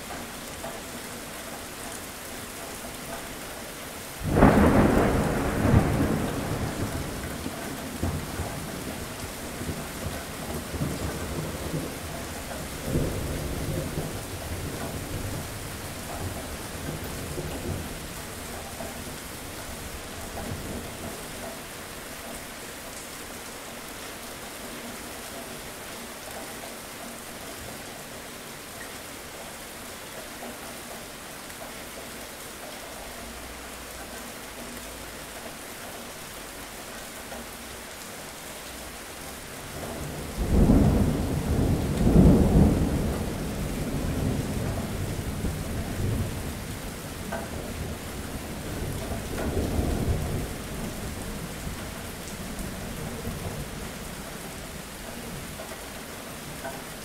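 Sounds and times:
steady rain falling: 0.0 - 57.0
loud peal of thunder: 4.2 - 8.7, 39.9 - 46.7
thunder rumbling: 4.2 - 21.1, 39.7 - 54.2.

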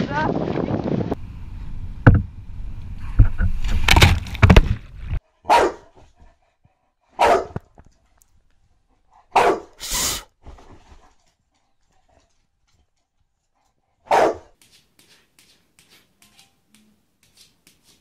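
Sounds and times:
loud thumps: 1.9 - 2.5, 3.1 - 5.2
dog barking: 5.4 - 6.0, 7.2 - 7.6, 9.3 - 9.8, 14.0 - 14.6.

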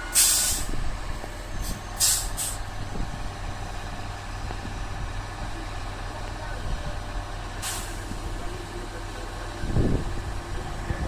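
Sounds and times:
diesel engine running: 0.0 - 11.0
compressed air hiss: 0.2 - 0.7, 2.0 - 2.6.

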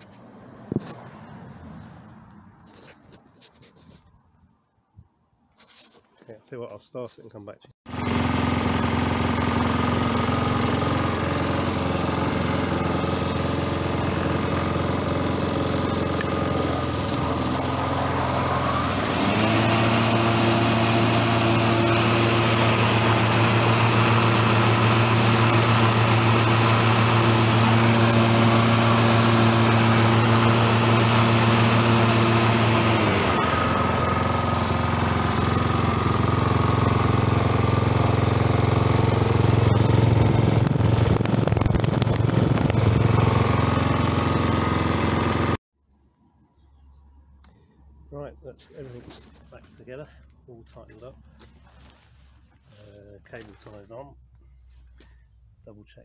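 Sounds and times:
lawn mower engine running: 7.9 - 45.6.

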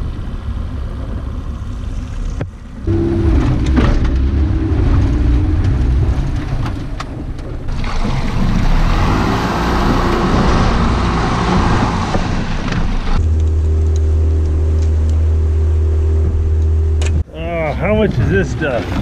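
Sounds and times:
propeller churning icy water: 0.2 - 19.0
outboard motor running: 0.5 - 9.1.

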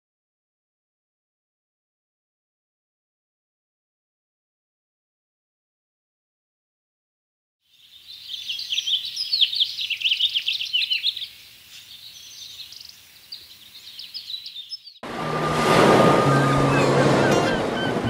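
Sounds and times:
small birds chirping: 7.6 - 15.0
loud rush of waves: 15.0 - 18.0.

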